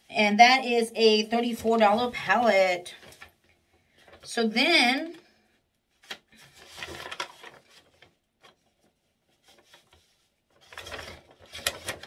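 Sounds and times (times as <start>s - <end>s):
packaging rustling and clicking: 6.0s - 8.7s, 10.6s - 12.0s.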